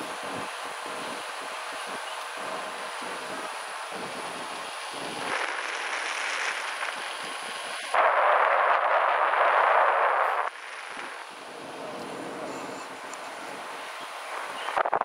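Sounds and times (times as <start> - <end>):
wind rushing over microphone: 0.0 - 15.0
wind buffeting: 0.1 - 15.0.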